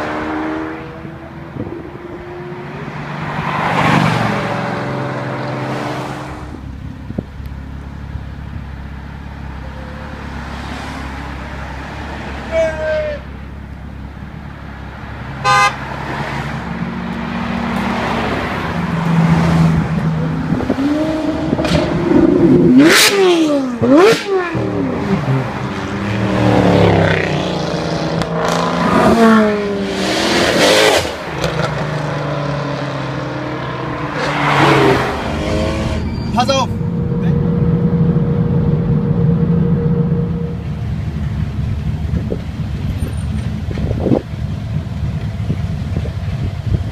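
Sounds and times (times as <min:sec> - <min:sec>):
cars driving past revving: 0:00.0 - 0:07.2, 0:08.5 - 0:12.9, 0:14.0 - 0:46.9
car horn toot: 0:15.4 - 0:15.8.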